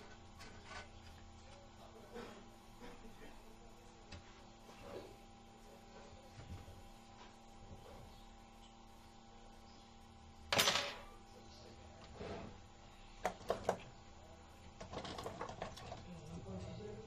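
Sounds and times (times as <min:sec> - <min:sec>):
rustling scrape: 0:12.1 - 0:12.6.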